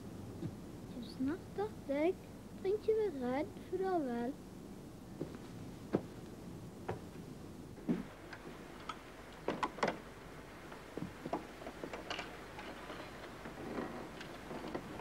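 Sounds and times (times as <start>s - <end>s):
footsteps on boards: 5.2s - 6.2s, 7.8s - 8.1s.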